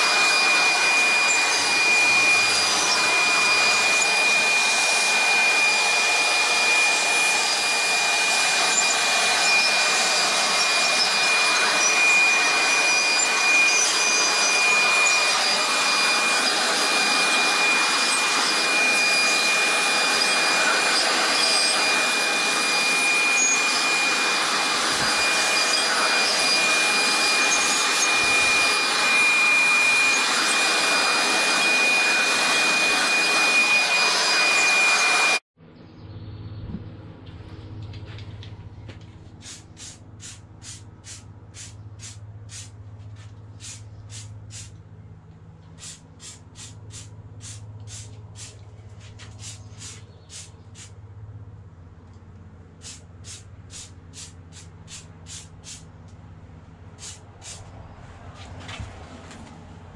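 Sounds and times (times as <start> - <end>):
electric leaf blower: 0.0 - 35.4, 45.8 - 48.6.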